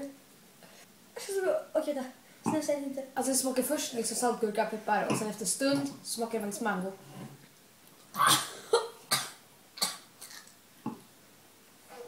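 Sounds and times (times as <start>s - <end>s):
boy coughing: 8.2s - 10.0s.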